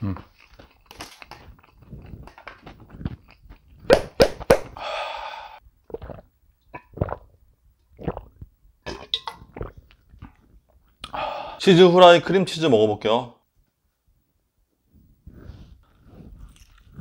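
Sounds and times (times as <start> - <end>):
person chewing food: 0.0 - 4.2, 5.8 - 8.5, 15.9 - 17.0
breathy exhale: 4.8 - 5.6, 11.1 - 11.6.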